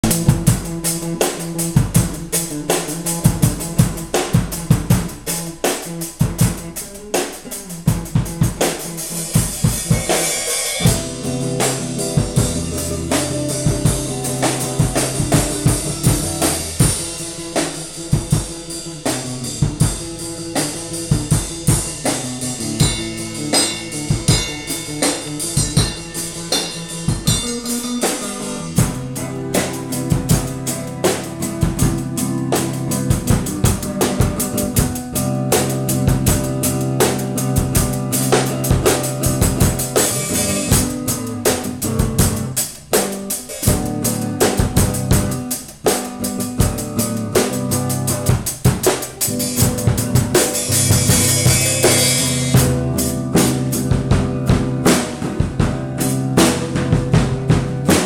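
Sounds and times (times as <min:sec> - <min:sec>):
drum kit beat: 0:00.0 - 0:58.0
electric guitar notes: 0:07.9 - 0:42.6, 0:43.2 - 0:58.0.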